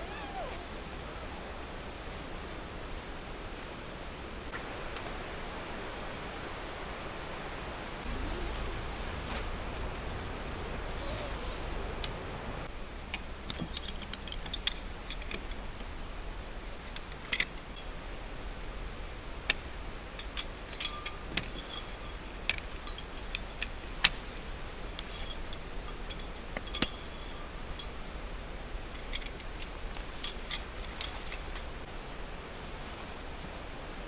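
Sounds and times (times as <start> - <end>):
low background hum: 0.0 - 34.0
metal poles clicking and clinking: 19.5 - 24.2, 24.9 - 28.0.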